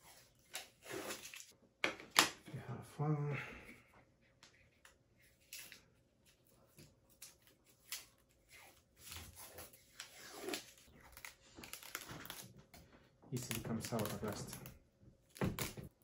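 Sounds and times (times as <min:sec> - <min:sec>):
paper backing crinkling: 0:05.4 - 0:16.0.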